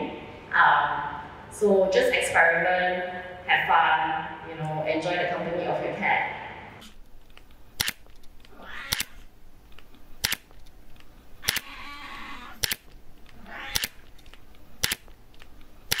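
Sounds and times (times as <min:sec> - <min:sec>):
camera shutter clicking: 0:07.8 - 0:08.1, 0:08.9 - 0:09.3, 0:10.2 - 0:10.5, 0:11.4 - 0:11.8, 0:12.5 - 0:13.0, 0:13.7 - 0:15.1.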